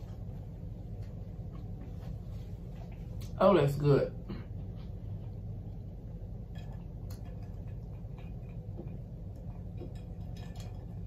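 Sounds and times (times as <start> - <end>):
low background hum: 0.0 - 11.0
chewing mouth clicks: 6.6 - 10.9.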